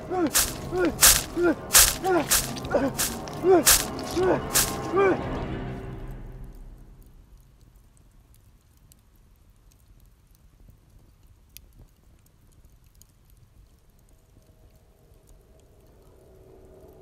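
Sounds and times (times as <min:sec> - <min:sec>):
faint crackles and clicks: 0:06.4 - 0:17.0.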